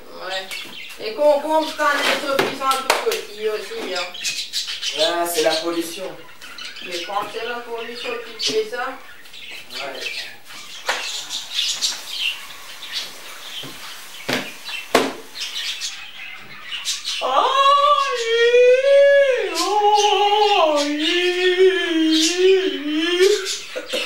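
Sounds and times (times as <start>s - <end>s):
woman singing high held notes: 17.2s - 23.6s.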